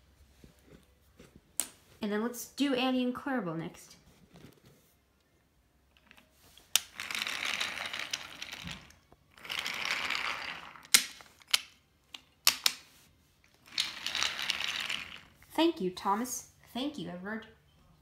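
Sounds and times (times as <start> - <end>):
toy train wheels rattling on track: 6.8 - 11.0, 13.6 - 15.4.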